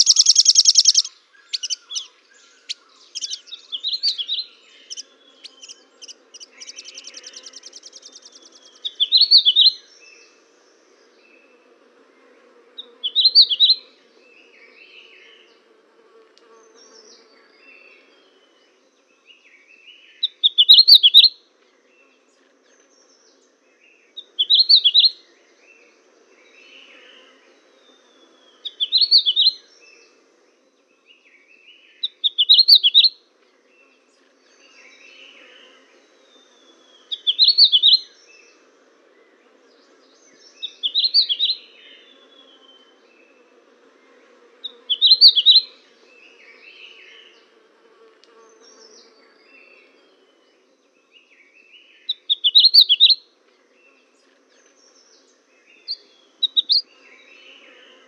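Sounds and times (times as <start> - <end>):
buzzy bird trill: 0.0 - 9.7, 37.1 - 38.0, 44.7 - 45.8, 52.1 - 53.2, 55.8 - 56.9
songbirds chirping: 0.0 - 58.0.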